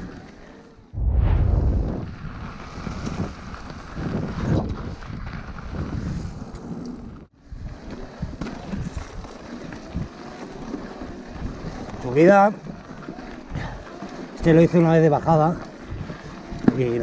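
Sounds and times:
wind buffeting microphone: 0:01.0 - 0:06.4
mountain bike rattling on dirt trail: 0:02.4 - 0:17.0.

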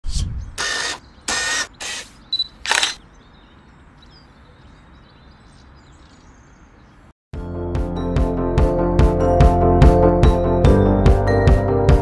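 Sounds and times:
camera shutter bursts: 0:00.6 - 0:03.0.

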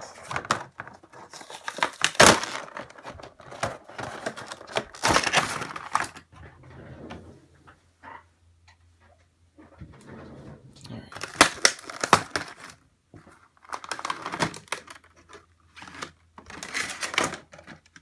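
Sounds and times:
plastic packaging crinkling: 0:00.0 - 0:06.3, 0:11.1 - 0:18.0.

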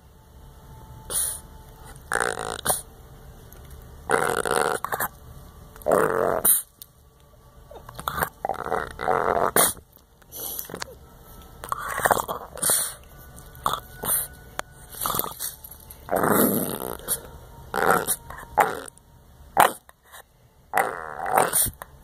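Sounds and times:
dog grumbling and grunting: 0:01.1 - 0:02.9, 0:04.1 - 0:05.2, 0:05.8 - 0:06.7, 0:07.7 - 0:09.8, 0:11.7 - 0:13.0, 0:15.0 - 0:18.9, 0:19.6 - 0:19.9, 0:20.7 - 0:21.8.

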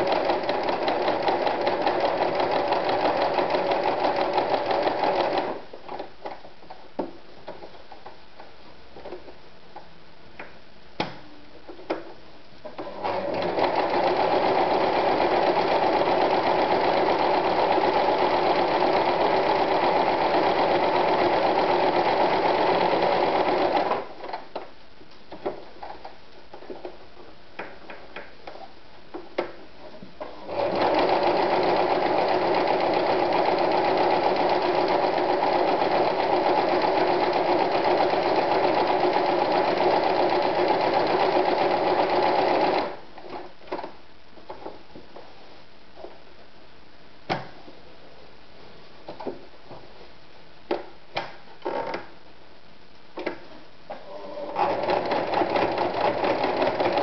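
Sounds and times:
sewing machine running: 0:00.0 - 0:05.6, 0:12.8 - 0:24.0, 0:30.4 - 0:43.0, 0:54.1 - 0:57.0.

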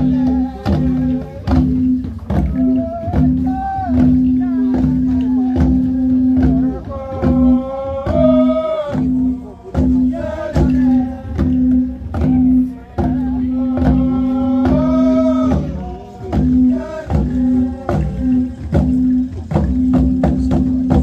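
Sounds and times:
hourglass drums beaten: 0:00.0 - 0:21.0
group of voices chanting: 0:02.4 - 0:19.0.

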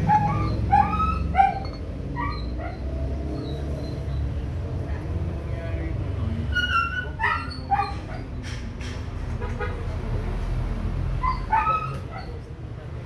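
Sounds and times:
dog yipping and whining: 0:00.0 - 0:04.2, 0:06.5 - 0:08.4, 0:11.2 - 0:12.4.

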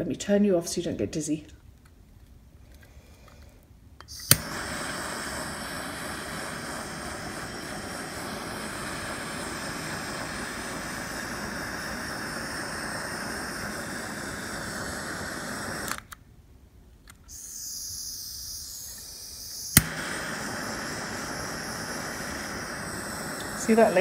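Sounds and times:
faint high hiss: 0:02.5 - 0:24.0
torch click: 0:04.0 - 0:16.2, 0:17.0 - 0:24.0
torch flame hissing: 0:04.0 - 0:16.2, 0:17.3 - 0:24.0.

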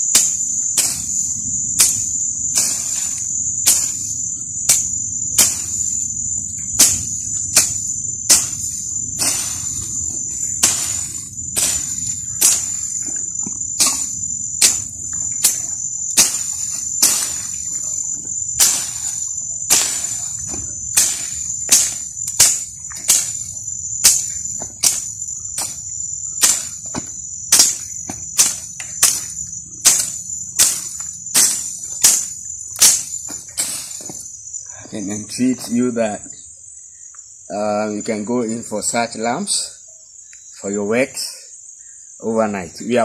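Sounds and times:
hand tool cutting weeds and soil: 0:00.0 - 0:34.3
night insects chirring: 0:00.0 - 0:43.0.

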